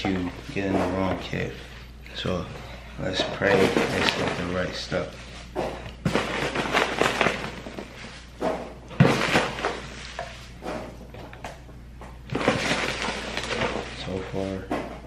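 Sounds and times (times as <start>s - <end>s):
packaging rustling: 6.0s - 8.2s, 12.3s - 14.3s.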